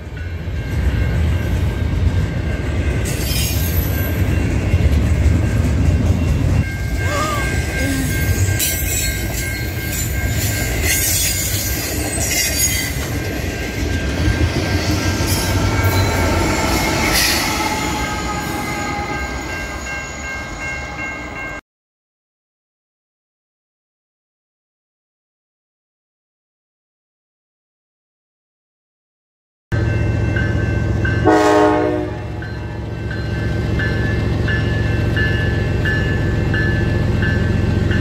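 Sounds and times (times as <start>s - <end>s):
train wheels rumbling on rail: 0.0s - 21.6s.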